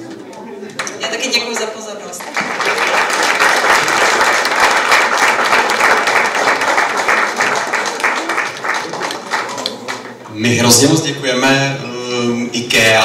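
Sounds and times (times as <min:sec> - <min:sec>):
audience applauding: 0:01.6 - 0:10.3.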